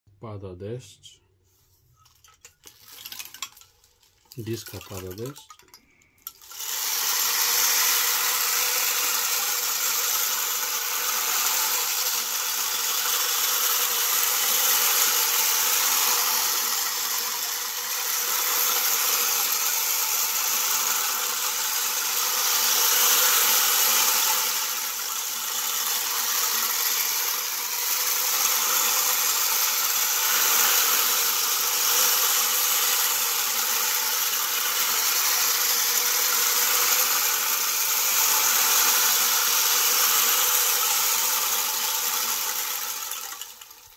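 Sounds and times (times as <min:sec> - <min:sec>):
rain disc patter: 0:02.0 - 0:06.4.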